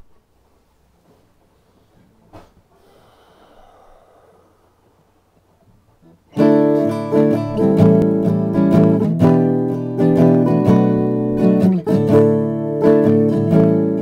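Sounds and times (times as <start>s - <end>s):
acoustic guitar strumming: 6.0s - 14.0s.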